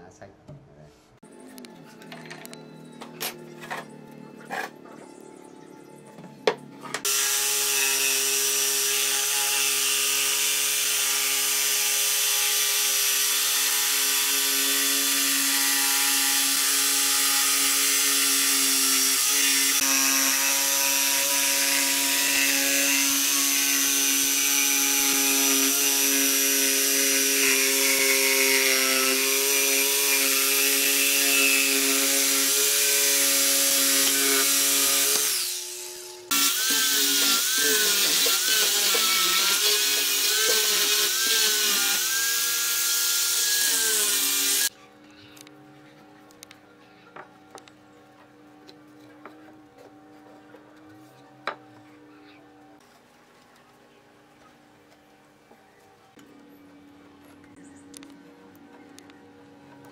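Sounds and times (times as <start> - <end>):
jigsaw cutting wood: 7.0 - 44.7.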